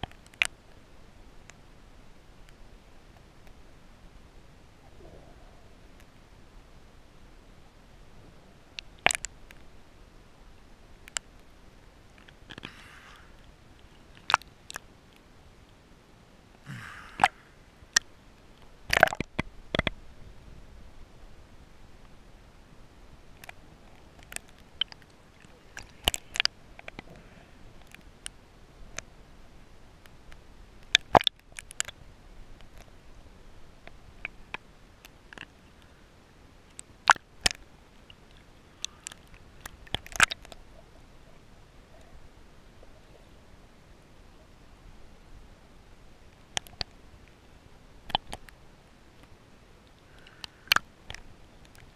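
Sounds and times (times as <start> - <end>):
sharp clicks and taps underwater: 8.8 - 9.7, 11.0 - 11.4, 12.1 - 15.2, 17.0 - 20.0, 23.4 - 27.2, 30.0 - 32.0, 33.8 - 35.9, 36.7 - 40.6, 46.3 - 47.4, 48.0 - 48.6, 49.2 - 51.9
water slapping against camera: 12.2 - 14.8, 16.8 - 17.4, 18.9 - 20.0, 23.4 - 27.2.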